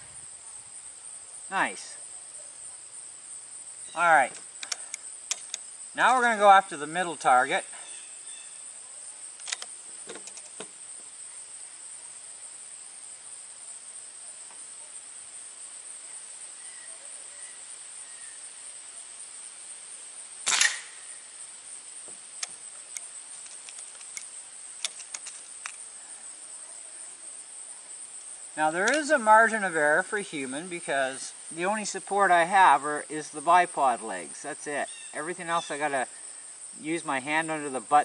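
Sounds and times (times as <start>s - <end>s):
insects chirring: 0.0s - 38.0s
faint clicks: 4.3s - 5.6s, 22.4s - 25.8s
air rifle shot: 20.5s - 21.0s.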